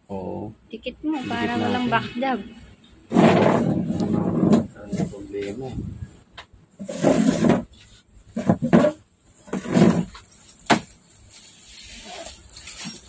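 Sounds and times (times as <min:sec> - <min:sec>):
small metal objects jingling: 0:10.0 - 0:13.0.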